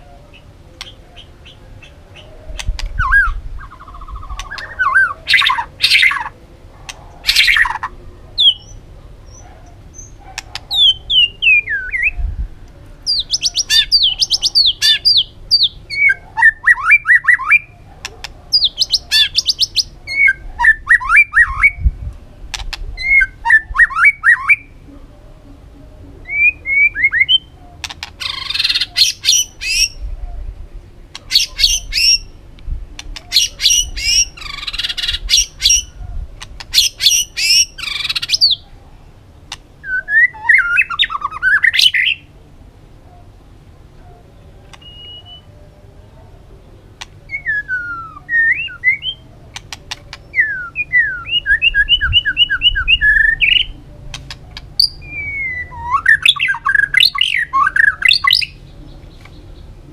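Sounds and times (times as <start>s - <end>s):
bird singing whistles and trills: 0.8s - 6.3s, 8.4s - 12.3s, 13.1s - 17.7s, 18.5s - 21.9s, 23.0s - 24.8s, 26.2s - 27.6s, 28.2s - 30.0s, 31.3s - 32.4s, 33.2s - 36.0s, 36.7s - 38.6s, 39.8s - 42.2s, 44.7s - 45.6s, 47.3s - 49.2s, 50.2s - 53.7s, 54.8s - 59.7s
harsh raspy bird notes: 26.3s - 30.0s.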